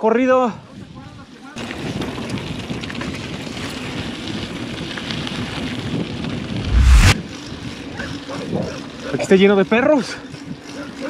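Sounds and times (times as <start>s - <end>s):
wind noise on microphone: 1.8s - 7.8s.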